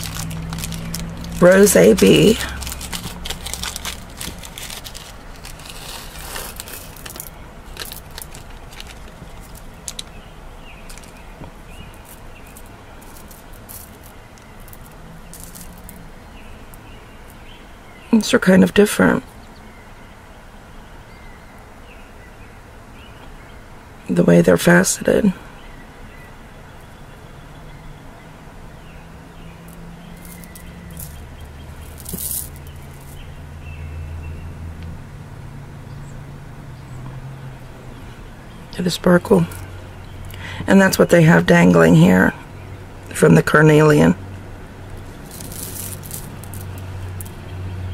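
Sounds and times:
glass beads clicking: 0.0 - 10.1, 10.9 - 11.3, 11.9 - 16.1, 29.7 - 33.2, 45.0 - 47.4
steady background hiss: 0.0 - 47.9.

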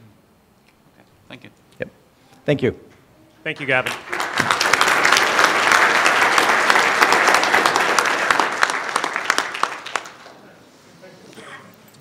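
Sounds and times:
audience applauding: 3.5 - 10.4.

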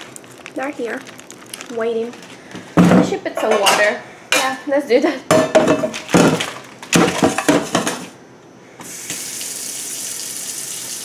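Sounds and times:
clatters of things handled: 5.4 - 8.1
water running from tap: 8.9 - 11.0.

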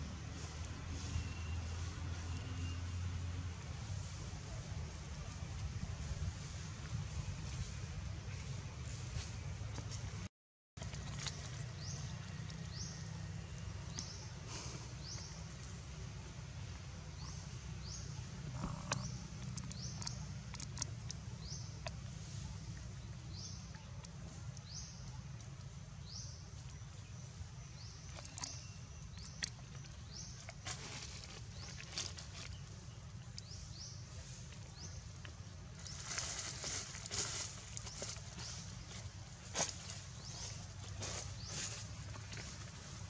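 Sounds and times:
leaf rustles: 30.6 - 32.9, 33.5 - 43.0.

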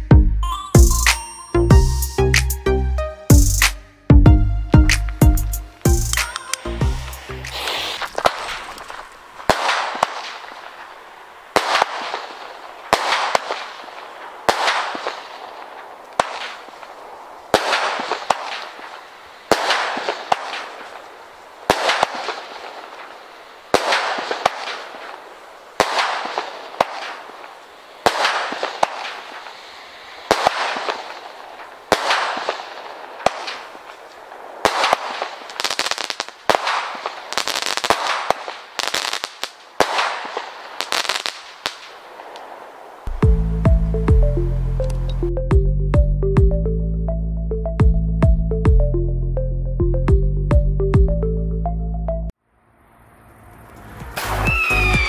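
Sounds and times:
firework bangs with hiss: 4.8 - 43.2, 53.8 - 55.0.

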